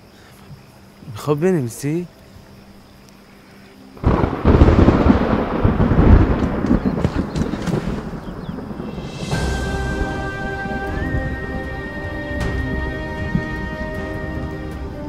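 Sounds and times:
thunder crack and rumble: 0:04.0 - 0:11.4.

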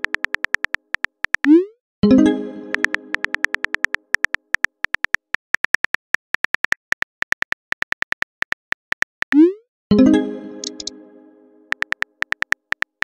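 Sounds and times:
phone keyboard clicks: 0:00.0 - 0:01.5, 0:02.7 - 0:09.4, 0:10.6 - 0:10.9, 0:11.7 - 0:13.0.

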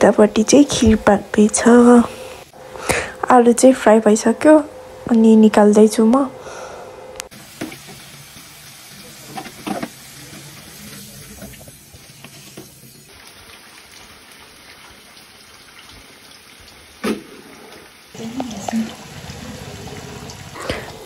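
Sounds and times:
hot oil sizzling: 0:07.3 - 0:21.0.

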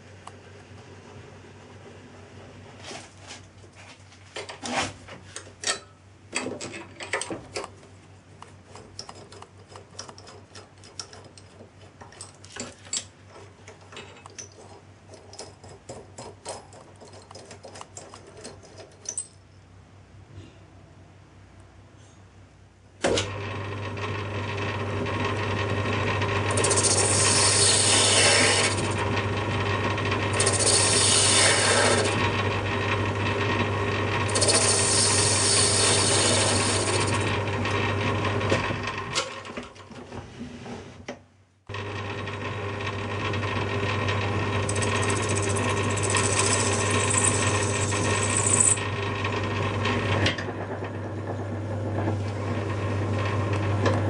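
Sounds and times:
metal lathe running: 0:24.5 - 0:39.0, 0:41.7 - 0:54.0
high-pitched cutting scrape: 0:26.6 - 0:29.0, 0:30.4 - 0:32.2.

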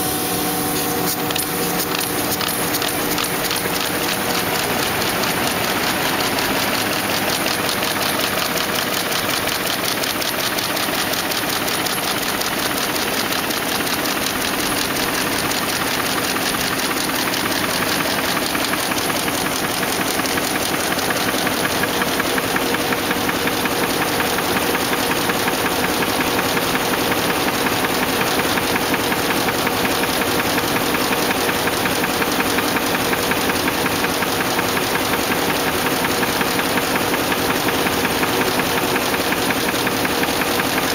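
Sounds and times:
machine hum: 0:00.0 - 0:27.2
envelope machine clattering: 0:01.2 - 0:40.9.

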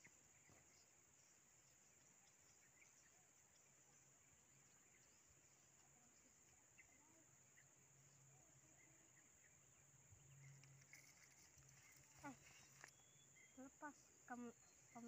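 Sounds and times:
faint chirps: 0:00.0 - 0:15.0.

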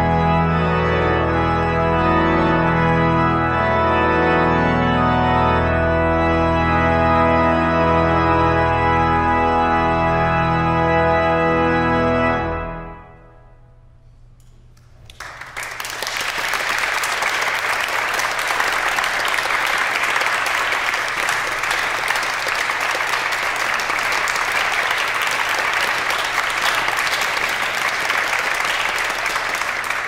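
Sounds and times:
audience applauding: 0:14.9 - 0:30.0.

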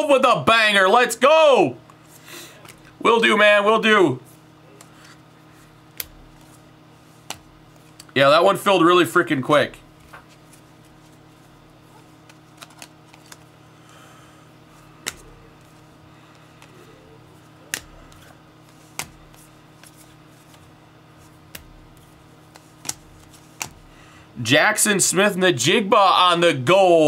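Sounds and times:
faint steady hum: 0:00.0 - 0:27.0
cards clicking and snapping: 0:05.9 - 0:06.6, 0:07.2 - 0:08.2, 0:12.2 - 0:13.5, 0:15.0 - 0:20.6, 0:21.2 - 0:23.9.

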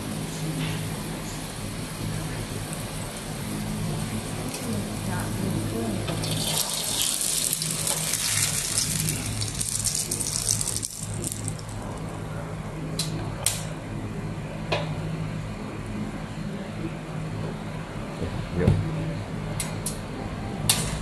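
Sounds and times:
food sizzling on grill pan: 0:00.9 - 0:11.8.

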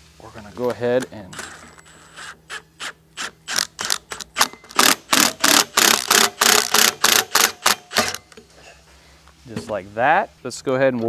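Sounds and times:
impact wrench short bursts: 0:01.3 - 0:08.3.

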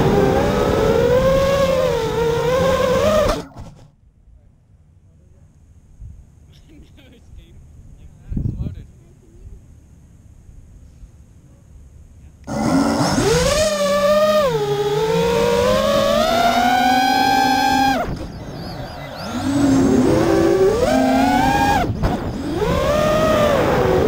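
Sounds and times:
drone motors whining: 0:00.0 - 0:03.8, 0:12.4 - 0:24.0.

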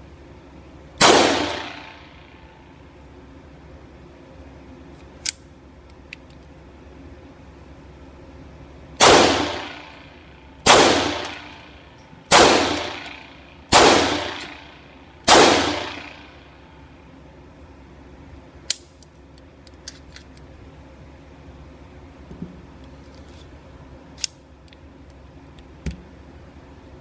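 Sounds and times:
pistol shots ringing indoors: 0:01.0 - 0:02.6, 0:09.0 - 0:16.8.

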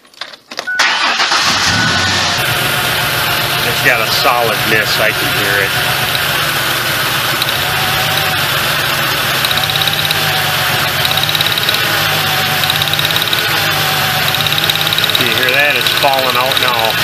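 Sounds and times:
engine idling with misfire: 0:00.8 - 0:17.0
fast ticking: 0:03.6 - 0:17.0.

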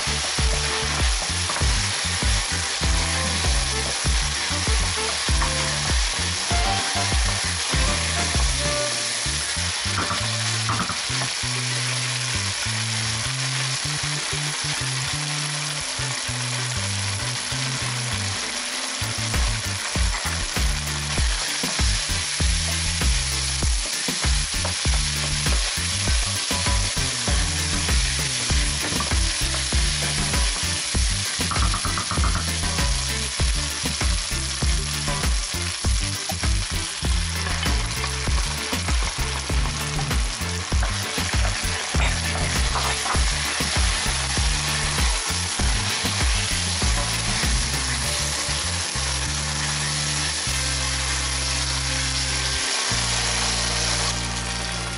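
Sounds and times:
rice sizzling in frying pan: 0:00.0 - 0:54.9
low thumping: 0:19.4 - 0:47.7.

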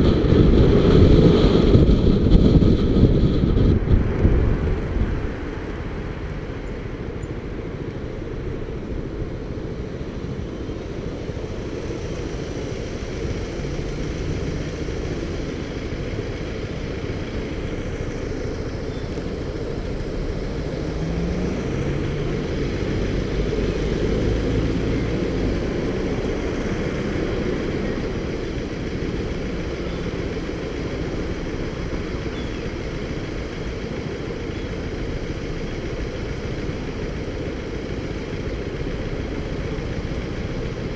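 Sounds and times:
cars in traffic: 0:00.0 - 0:40.9
motorcycle engine idling: 0:08.4 - 0:40.9.

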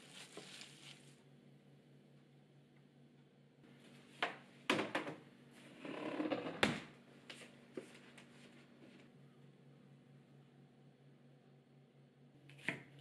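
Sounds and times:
rustling scrape: 0:00.0 - 0:01.2.

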